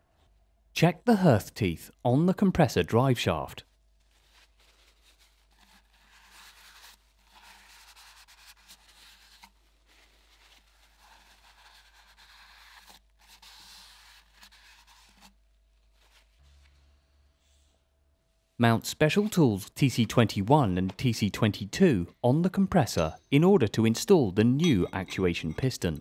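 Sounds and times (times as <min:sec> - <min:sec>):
cloth rustling in gloved hands: 0:03.7 - 0:17.0.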